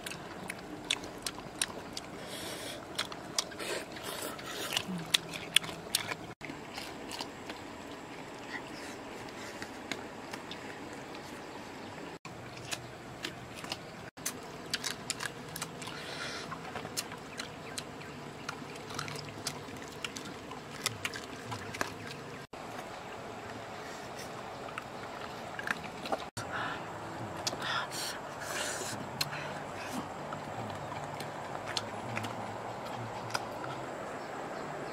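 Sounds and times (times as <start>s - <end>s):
dogs chewing and licking: 0.0s - 11.4s, 12.3s - 22.9s, 29.2s - 34.0s
steady background hiss: 13.8s - 34.9s.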